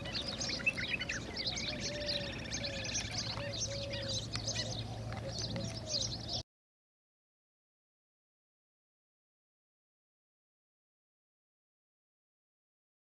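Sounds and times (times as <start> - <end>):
bird trill: 0.0 - 6.4
low-pitched bird calls: 0.0 - 6.4
small birds chirping: 0.0 - 6.4.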